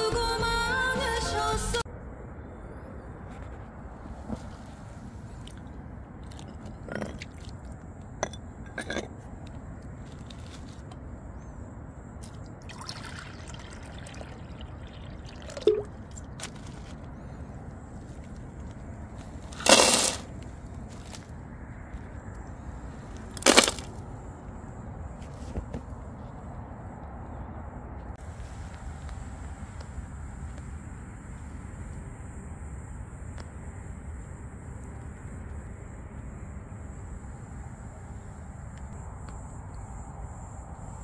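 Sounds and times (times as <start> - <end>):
faint outdoor background: 0.0 - 41.0
loud handling noises: 19.5 - 21.2, 23.3 - 24.0.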